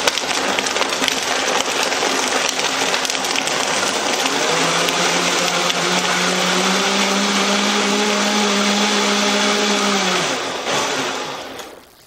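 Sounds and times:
liquid churning: 0:00.0 - 0:12.0
blender motor hum: 0:03.7 - 0:11.8.

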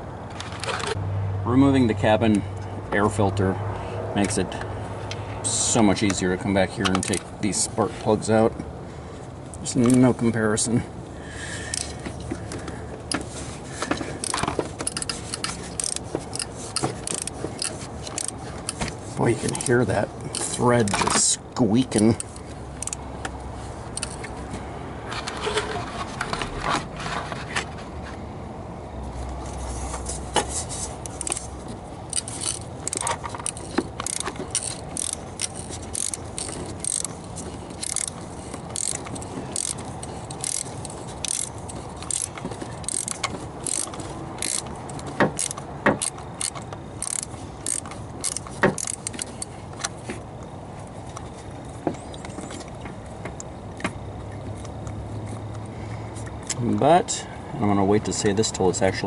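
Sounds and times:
ratchet wrench clicking: 0:06.8 - 0:07.2, 0:11.7 - 0:12.0, 0:13.8 - 0:21.0, 0:21.9 - 0:23.0, 0:23.9 - 0:24.3, 0:31.0 - 0:31.5, 0:32.1 - 0:49.9.

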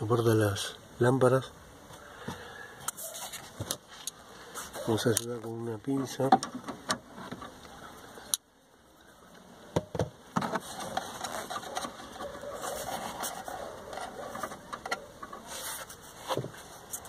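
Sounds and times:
scraping and rustling: 0:02.9 - 0:05.5, 0:10.3 - 0:17.0.

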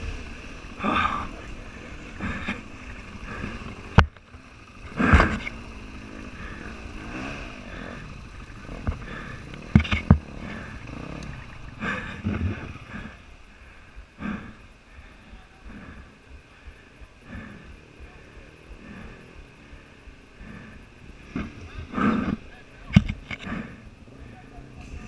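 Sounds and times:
motorcycle jolting over ruts: 0:00.0 - 0:13.3
motorcycle engine running: 0:00.0 - 0:25.0.

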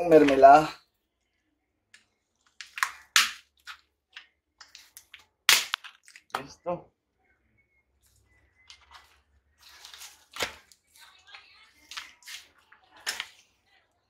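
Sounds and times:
plastic pot cracking and snapping: 0:02.5 - 0:06.5.

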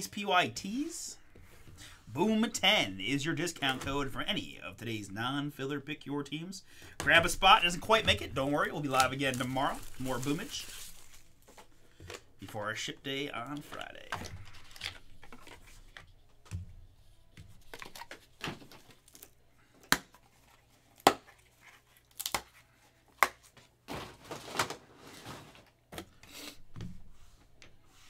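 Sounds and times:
rubbing and rustling: 0:07.2 - 0:12.0, 0:13.4 - 0:19.1, 0:22.8 - 0:25.9.

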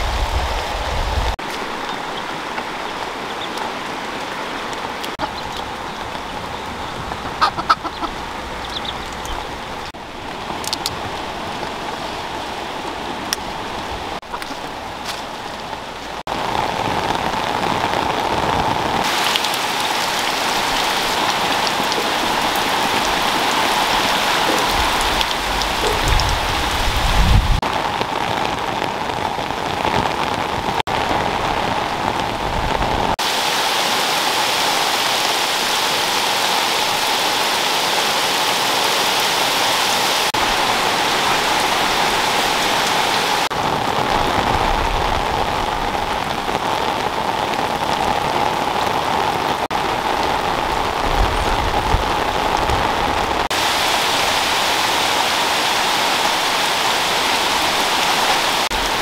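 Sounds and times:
heavy rain pouring: 0:00.0 - 0:59.0.

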